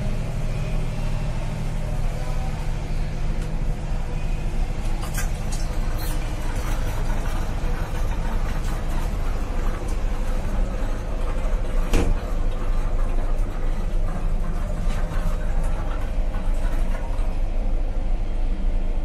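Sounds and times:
train coach rumbling on track: 0.0s - 19.0s.

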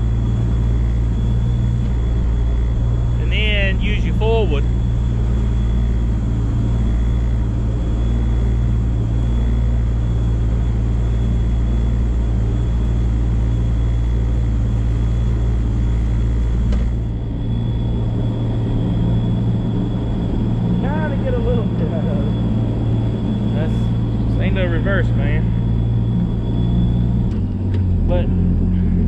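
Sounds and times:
jet boat engine running: 0.0s - 29.0s
thin high whine: 0.0s - 29.0s.

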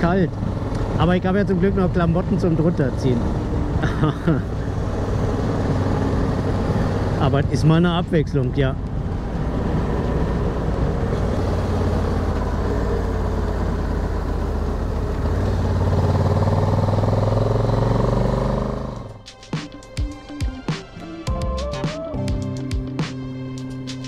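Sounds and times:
motorcycle engine running: 0.0s - 19.2s.

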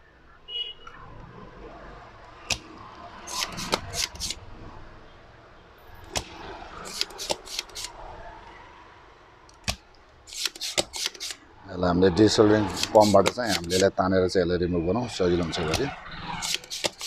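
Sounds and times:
desoldering pump snapping: 9.5s - 11.4s, 12.8s - 13.8s.

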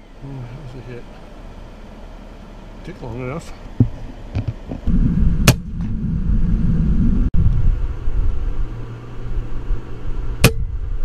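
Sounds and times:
steady low rumble: 0.0s - 11.0s
air rifle shot: 5.4s - 5.9s.

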